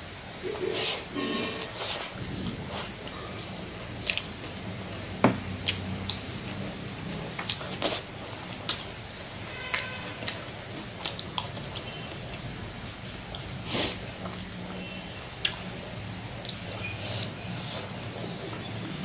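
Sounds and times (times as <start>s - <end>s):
chewing and lip smacks: 4.0s - 4.4s, 7.4s - 8.9s, 15.4s - 15.7s, 16.4s - 18.7s
sharp sniff: 13.7s - 14.0s.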